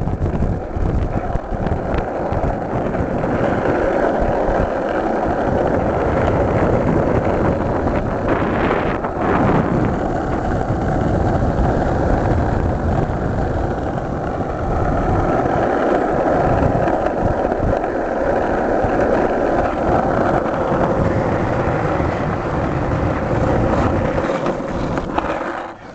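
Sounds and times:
skateboard wheels rolling on asphalt: 0.0s - 25.9s.

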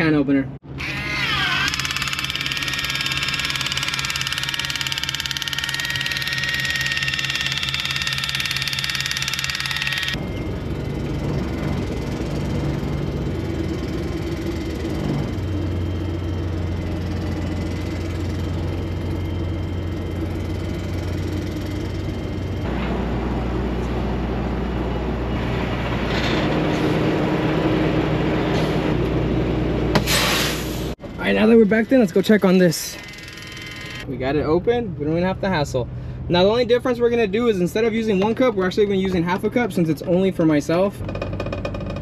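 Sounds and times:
truck diesel engine running: 1.8s - 30.0s.

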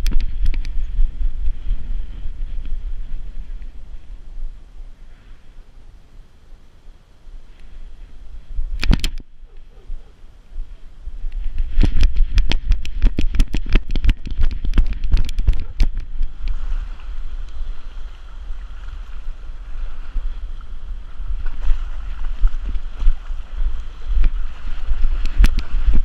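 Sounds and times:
wind buffeting microphone: 0.0s - 5.0s, 7.6s - 26.0s
shallow water splashing: 11.3s - 26.0s.

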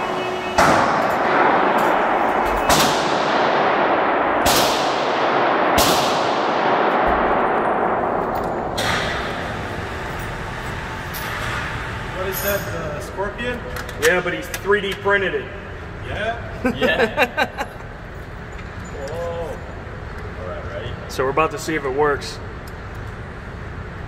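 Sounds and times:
gunshots echoing: 0.6s - 10.6s.

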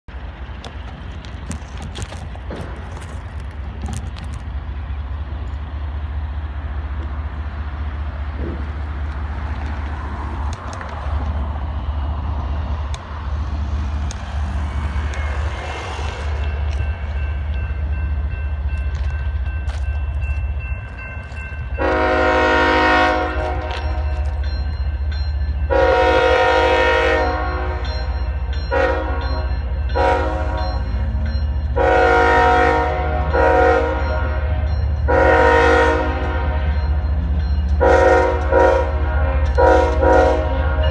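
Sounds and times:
locomotive air horn blasts: 21.8s - 24.0s, 25.7s - 27.8s, 28.7s - 30.7s, 31.8s - 36.8s, 37.8s - 40.9s.

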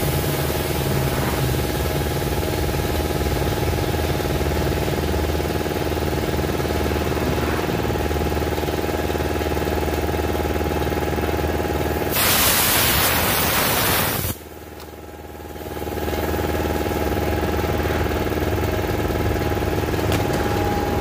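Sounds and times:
compressed air hissing: 0.0s - 1.9s, 12.1s - 14.5s
mechanical hum: 0.0s - 21.0s.

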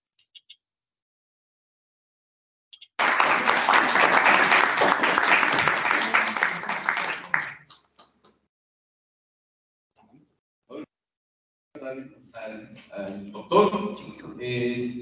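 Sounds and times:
applause: 3.0s - 8.1s.

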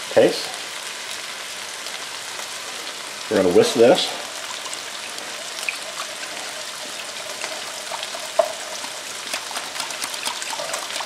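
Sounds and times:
chicken sizzling in oil: 0.0s - 11.0s
whisk ticking against ceramic bowl: 7.9s - 11.0s.

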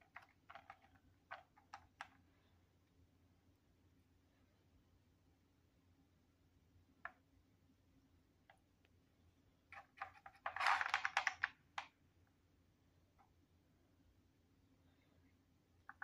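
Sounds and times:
plastic puzzle toy clicking: 9.8s - 11.9s.

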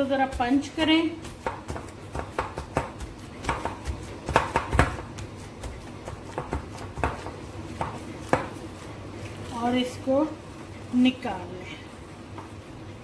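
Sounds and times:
dough punched in glass bowl: 1.2s - 8.6s.

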